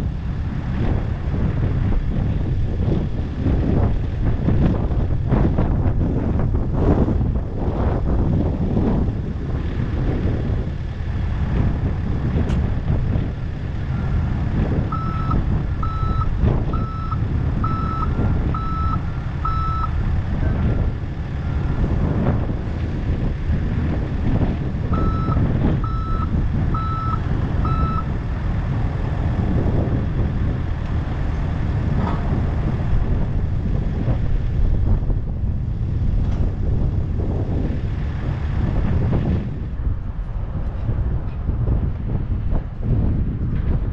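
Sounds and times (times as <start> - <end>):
diesel engine running: 0.0 - 43.9
backup alarm beeping: 14.9 - 20.0, 24.9 - 28.1.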